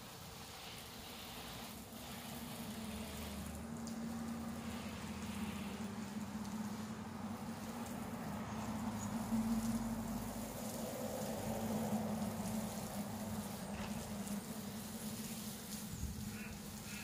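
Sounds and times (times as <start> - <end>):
hose spray pattering on plants: 0.0 - 17.0.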